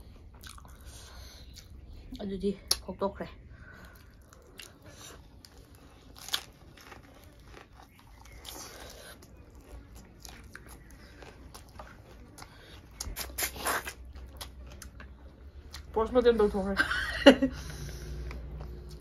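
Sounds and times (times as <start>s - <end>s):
crunching fried food: 0.0s - 1.8s, 3.6s - 16.0s
chewing mouth sounds: 0.1s - 2.8s, 3.8s - 16.0s.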